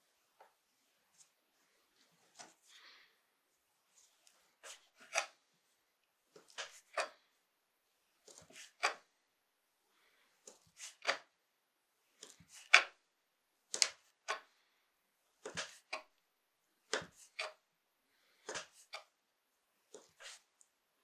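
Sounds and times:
knife slicing pasta dough: 0:19.9 - 0:20.5.

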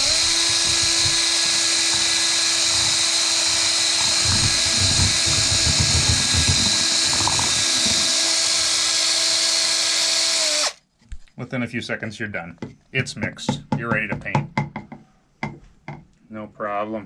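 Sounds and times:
electric drill motor whine: 0:00.0 - 0:10.8.

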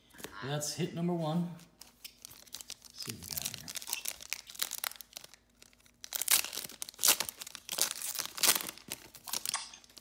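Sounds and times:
foil wrapper tearing and crinkling: 0:02.0 - 0:10.0.

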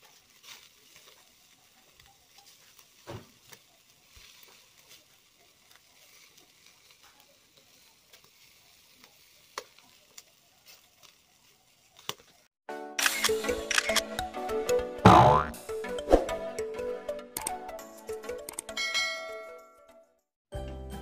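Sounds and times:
sharp pops of charcoal: 0:00.0 - 0:11.2, 0:11.9 - 0:12.4
burning charcoal crackling: 0:00.0 - 0:12.6.

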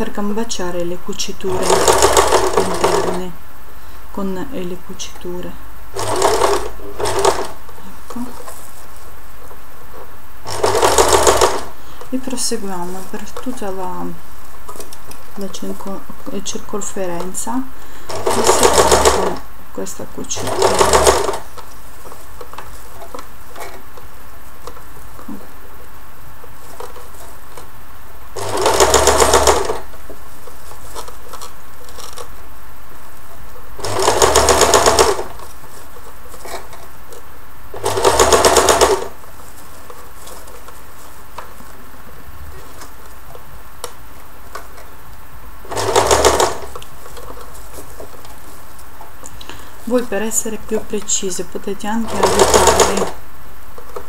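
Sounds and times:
low background noise: 0:00.0 - 0:54.0
sewing machine stitching: 0:01.4 - 0:03.3, 0:05.9 - 0:08.3, 0:10.4 - 0:11.8, 0:18.1 - 0:19.5, 0:20.3 - 0:21.6, 0:28.4 - 0:30.0, 0:33.8 - 0:35.4, 0:37.8 - 0:39.2, 0:45.7 - 0:47.4, 0:52.0 - 0:53.2.

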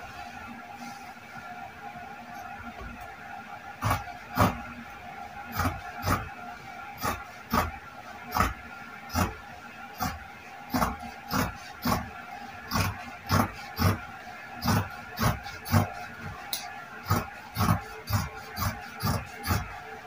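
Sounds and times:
shears cutting fabric: 0:03.8 - 0:04.6, 0:05.5 - 0:06.3, 0:07.0 - 0:09.4, 0:10.0 - 0:14.0, 0:14.6 - 0:19.8.

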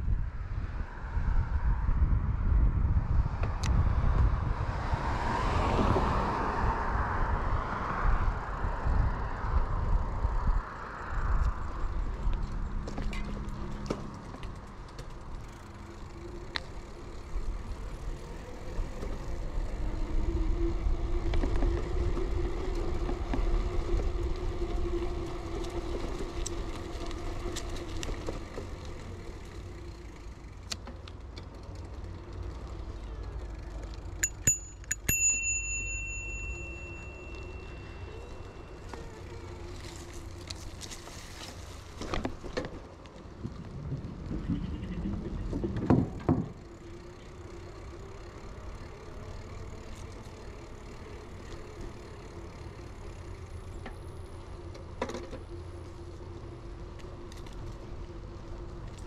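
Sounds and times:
wind rumble on microphone: 0:00.0 - 0:15.4, 0:16.2 - 0:29.6, 0:40.0 - 0:46.6
bicycle tyre noise: 0:00.1 - 0:59.0
high ringing tone: 0:34.2 - 0:39.6.

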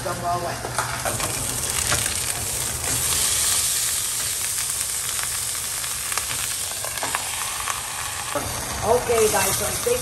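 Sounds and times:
steak sizzling in a pan: 0:01.0 - 0:10.0.

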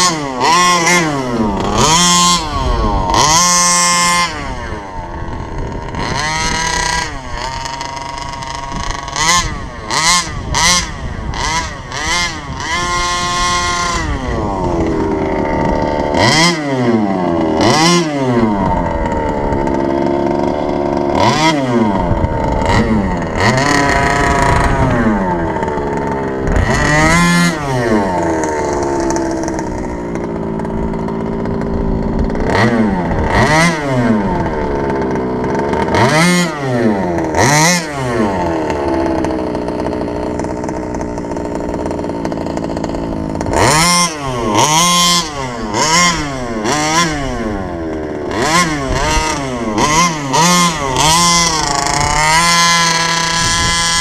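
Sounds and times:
two-stroke engine revving: 0:00.0 - 0:54.0.

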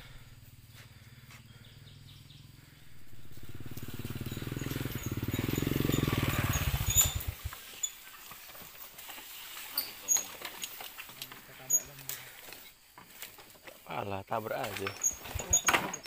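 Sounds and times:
small motorcycle engine running: 0:00.0 - 0:09.3.

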